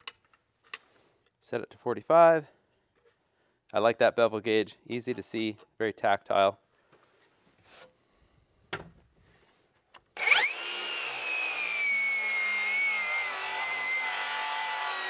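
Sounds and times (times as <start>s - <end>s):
circular saw cutting wood: 10.2s - 15.0s.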